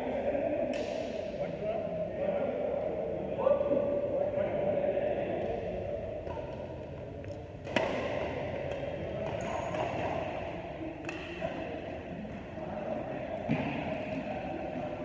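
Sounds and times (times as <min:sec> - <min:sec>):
racket hitting shuttlecock: 0:07.6 - 0:10.4, 0:11.0 - 0:11.6.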